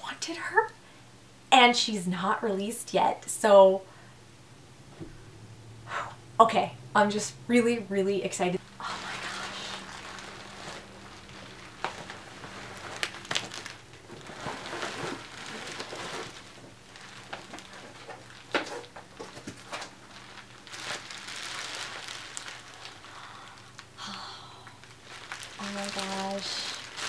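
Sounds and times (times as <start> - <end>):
bubble wrap rustling and crinkling: 8.4 - 27.0
bubble wrap crackles: 8.5 - 27.0.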